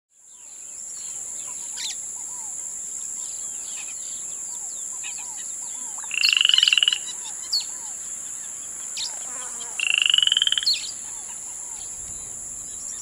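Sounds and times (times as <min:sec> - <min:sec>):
high-pitched insect drone: 0:00.3 - 0:13.0.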